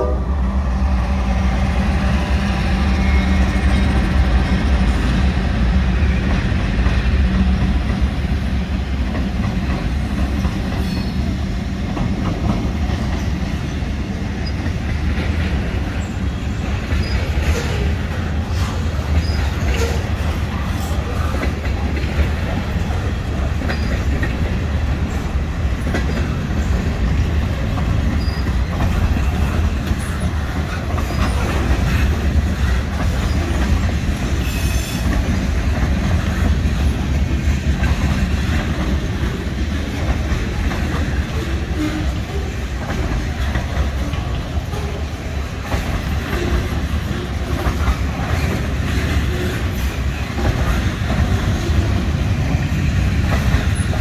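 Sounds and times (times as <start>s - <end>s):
freight train cars rolling past: 0.0s - 54.0s.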